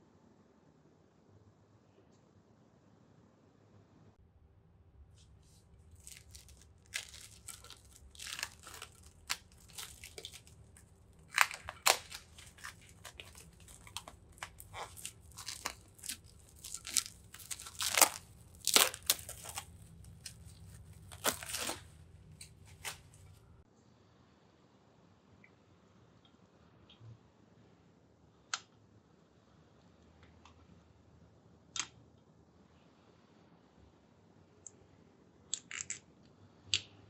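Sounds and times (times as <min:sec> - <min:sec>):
cling film crinkling: 0:05.8 - 0:23.6.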